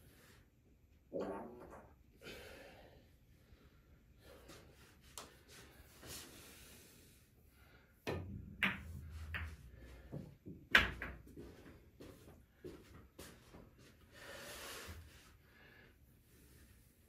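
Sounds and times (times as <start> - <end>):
pool balls colliding: 8.1 - 9.7.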